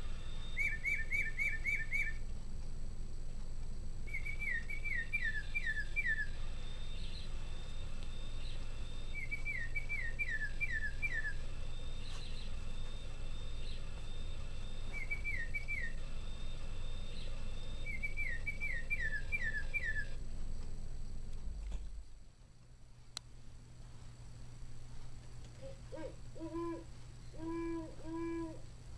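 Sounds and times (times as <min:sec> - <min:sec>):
clock playing recorded bird song: 0:00.0 - 0:02.3, 0:04.0 - 0:20.2.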